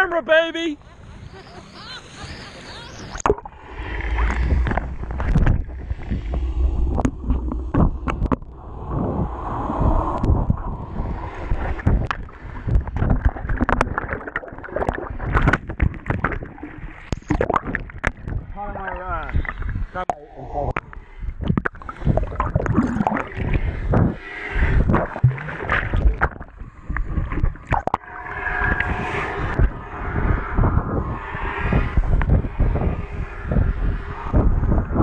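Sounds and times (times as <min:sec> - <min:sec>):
muffled underwater rumble: 0:00.8 - 0:35.0
water sloshing and splashing: 0:03.1 - 0:20.1, 0:21.4 - 0:30.2.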